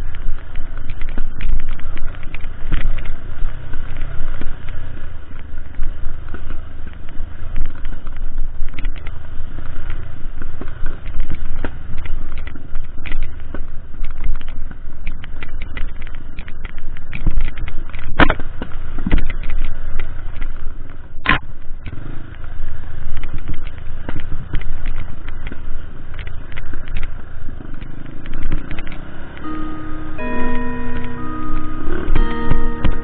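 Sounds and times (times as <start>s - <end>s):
motorcycle engine rumble: 0.0s - 33.0s
sharp thumps: 28.5s - 33.0s.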